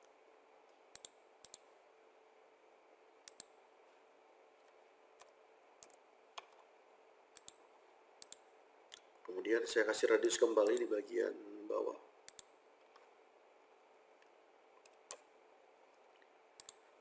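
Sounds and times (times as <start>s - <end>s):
faint steady hiss and hum: 0.0s - 17.0s
computer mouse clicks: 0.7s - 1.7s, 3.2s - 3.6s, 4.6s - 6.7s, 7.3s - 7.6s, 8.2s - 9.3s, 10.6s - 10.9s, 12.2s - 13.1s, 14.2s - 15.3s, 15.9s - 16.9s.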